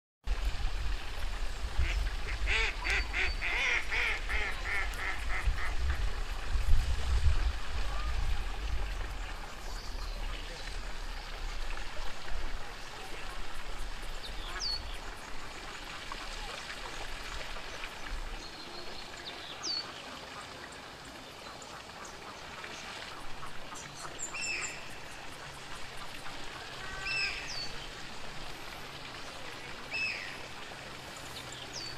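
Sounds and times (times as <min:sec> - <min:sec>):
duck quacking: 0:01.8 - 0:06.0.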